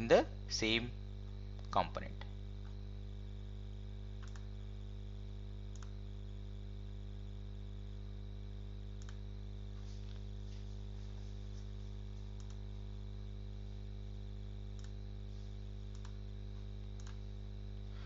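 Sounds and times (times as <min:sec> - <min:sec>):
electrical hum: 0:00.0 - 0:18.0
computer mouse clicks: 0:04.2 - 0:04.5, 0:05.7 - 0:06.0, 0:09.0 - 0:09.2, 0:12.4 - 0:12.6, 0:14.7 - 0:15.0, 0:15.9 - 0:16.2, 0:16.9 - 0:17.2.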